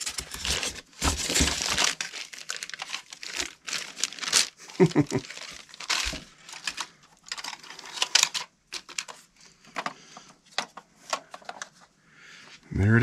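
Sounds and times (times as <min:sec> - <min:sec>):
plastic wrapping rustling: 0:00.0 - 0:09.9.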